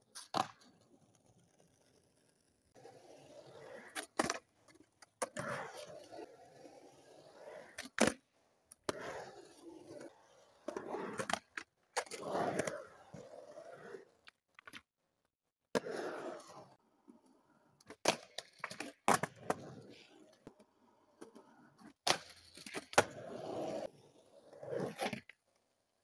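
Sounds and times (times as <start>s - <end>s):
skateboard wheels rolling on concrete: 0.0s - 14.9s, 15.7s - 26.0s
skateboard clacks: 0.1s - 5.9s, 17.8s - 19.8s, 20.4s - 24.0s.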